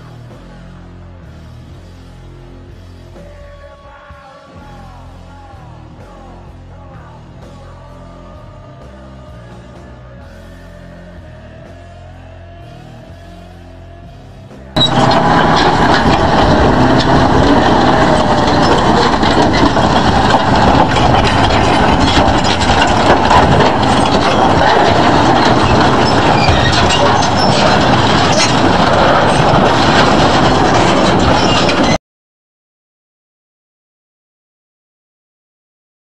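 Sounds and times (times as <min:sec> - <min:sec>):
bulldozer engine running hard: 0:00.0 - 0:03.9, 0:04.6 - 0:32.0
metal clanks: 0:14.8 - 0:32.0
tracks and blade clattering: 0:14.8 - 0:32.0.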